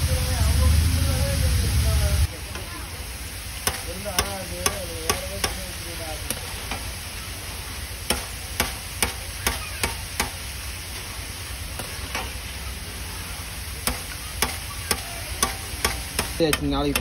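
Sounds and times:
chips sizzling in hot oil: 0:00.0 - 0:17.0
metal skimmer knocking on pan: 0:03.6 - 0:05.7.

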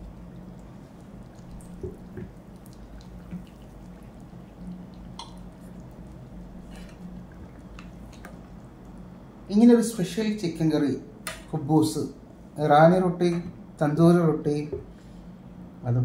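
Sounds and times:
liquid dripping and trickling: 0:00.0 - 0:09.3
steady low hum: 0:00.0 - 0:16.0.

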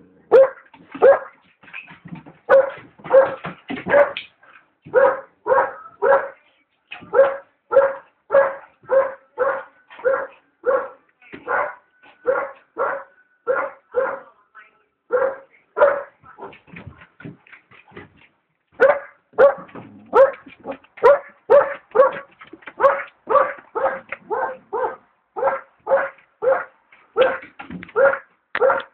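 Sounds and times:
puppy barking: 0:00.3 - 0:01.4, 0:02.5 - 0:04.2, 0:04.9 - 0:06.4, 0:07.1 - 0:14.3, 0:15.1 - 0:16.2, 0:18.8 - 0:28.9.

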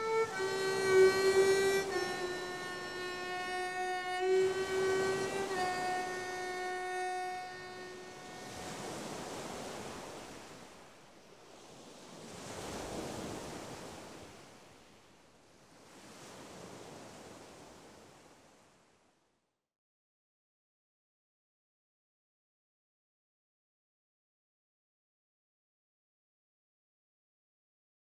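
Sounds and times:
surf-like wave noise: 0:00.0 - 0:19.1.

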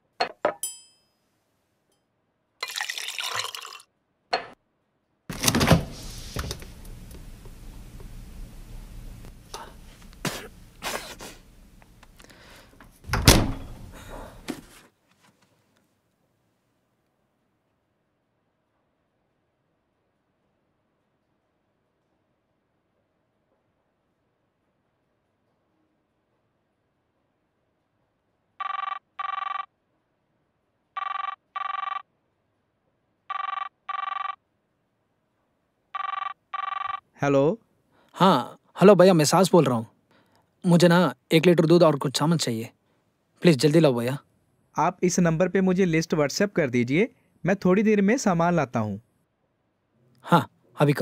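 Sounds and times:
refrigerator door thud: 0:05.3 - 0:07.0, 0:13.0 - 0:14.6
telephone ringback double rings: 0:28.6 - 0:29.7, 0:31.0 - 0:32.0, 0:33.3 - 0:34.4, 0:36.0 - 0:37.0.

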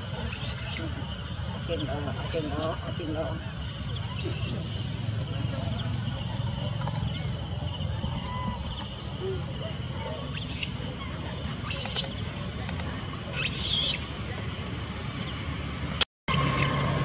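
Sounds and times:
insect chorus: 0:00.0 - 0:17.0
high-pitched animal calls: 0:00.2 - 0:03.3, 0:05.5 - 0:12.3, 0:13.1 - 0:14.2, 0:16.3 - 0:17.0.

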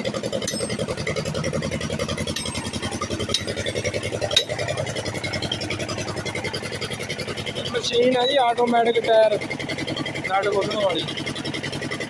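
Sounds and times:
motor running with rapid pulse: 0:00.0 - 0:12.0
sharp knocks: 0:02.2 - 0:04.8.

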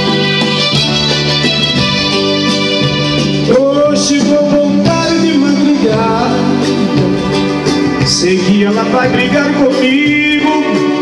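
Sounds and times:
acoustic guitar: 0:00.0 - 0:11.0
drums: 0:00.0 - 0:11.0
keyboard: 0:00.0 - 0:11.0
man singing: 0:03.4 - 0:11.0.

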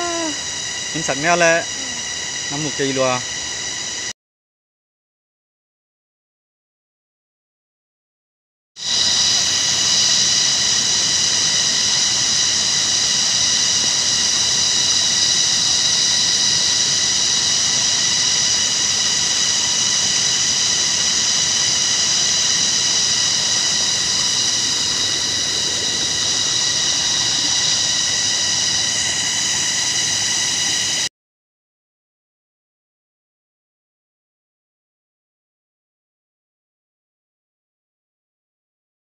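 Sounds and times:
high-pitched drone: 0:00.0 - 0:03.2, 0:08.9 - 0:31.1.

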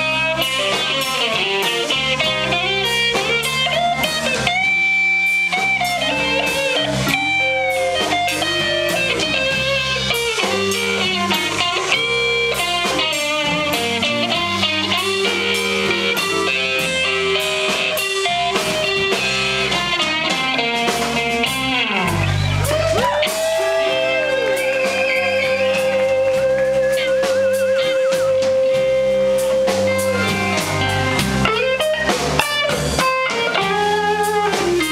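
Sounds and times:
drum kit: 0:00.0 - 0:34.9
electric bass: 0:00.0 - 0:34.9
electric guitar lead: 0:00.0 - 0:34.9.

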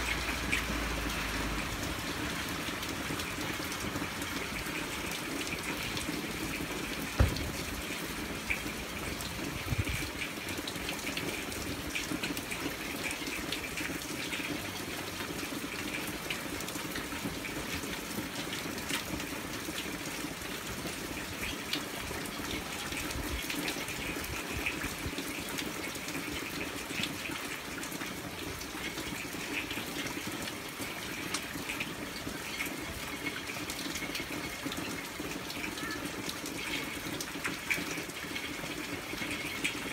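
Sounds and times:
hard rain falling: 0:00.0 - 0:39.9
raindrops ticking: 0:00.0 - 0:39.9
thumps: 0:07.2 - 0:07.7.

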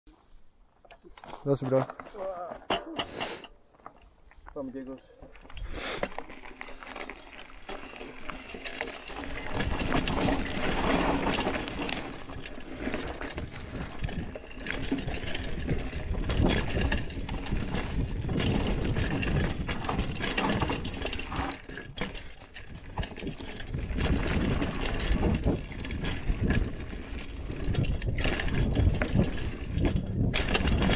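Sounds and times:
mountain bike rattling over ground: 0:03.8 - 0:30.9.

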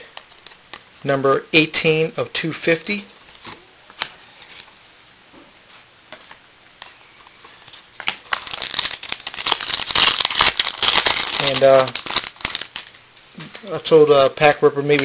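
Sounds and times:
foil wrapper crinkling: 0:07.5 - 0:13.0.

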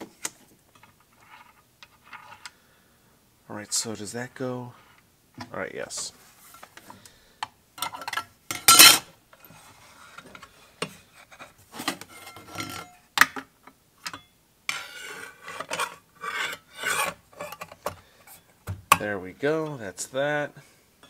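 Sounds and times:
saw blade scraping: 0:14.7 - 0:17.6.

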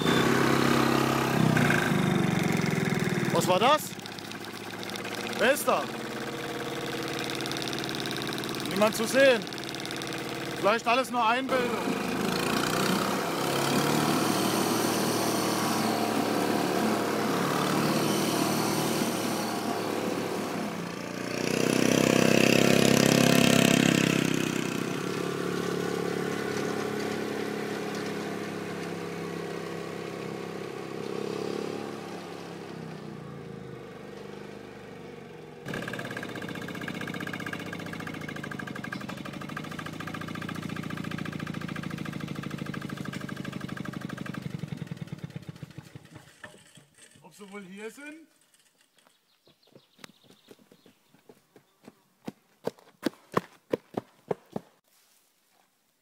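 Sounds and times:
tractor engine chugging: 0:00.0 - 0:14.0, 0:35.6 - 0:46.4
tractor engine running steadily: 0:00.0 - 0:47.0.

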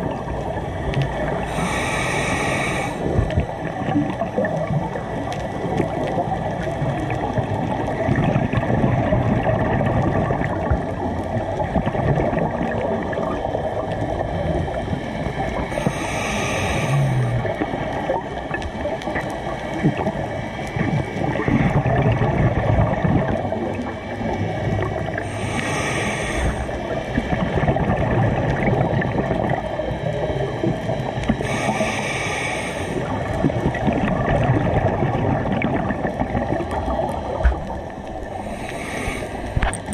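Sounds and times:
underwater rush and exhaled bubbles: 0:00.0 - 0:39.9
scuba regulator hissing inhalations: 0:01.4 - 0:03.3, 0:15.7 - 0:17.5, 0:25.2 - 0:26.9, 0:31.4 - 0:33.1, 0:38.4 - 0:39.9.

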